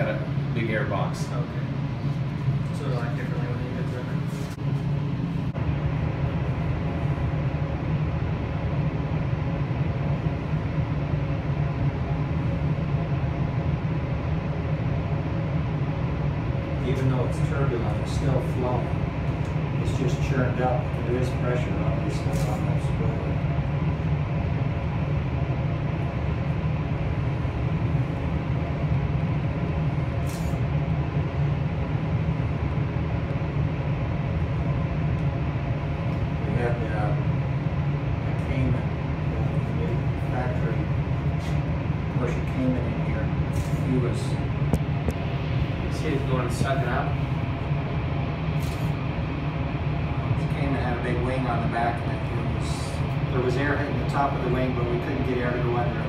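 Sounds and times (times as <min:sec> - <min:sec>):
wind tunnel fans running: 0:00.0 - 0:56.0.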